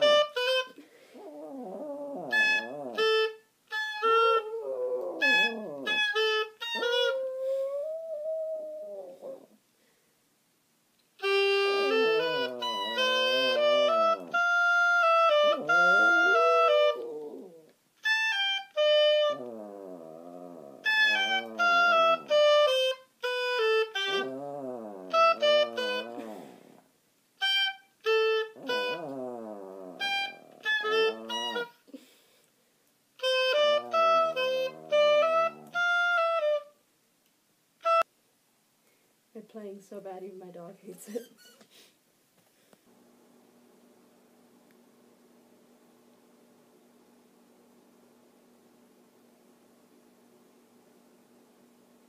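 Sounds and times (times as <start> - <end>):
oboe playing: 0.0 - 0.8, 2.2 - 8.2, 11.2 - 17.4, 18.0 - 19.6, 20.8 - 26.3, 27.4 - 29.2, 30.0 - 31.8, 33.2 - 36.8, 37.8 - 38.1.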